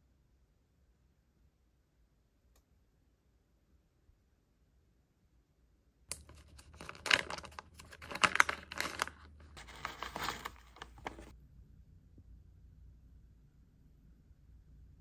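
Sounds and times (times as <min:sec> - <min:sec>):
plastic pouch crinkling: 0:06.1 - 0:11.3.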